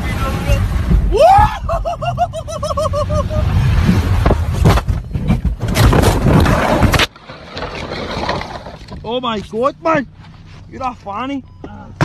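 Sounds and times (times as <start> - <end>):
car crash rumbling and scraping: 0.0 - 10.7
person yelling: 1.1 - 2.0
car tumbling hard bangs: 3.8 - 7.3.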